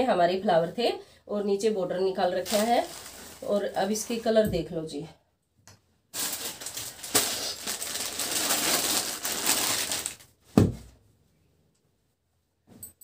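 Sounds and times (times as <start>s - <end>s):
cloth rustling and crinkling: 2.2s - 4.4s, 6.1s - 10.9s.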